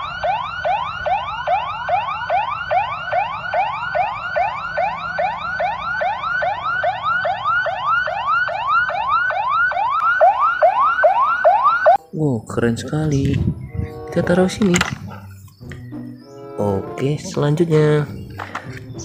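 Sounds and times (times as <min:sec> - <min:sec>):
police siren yelping: 0:00.0 - 0:12.0.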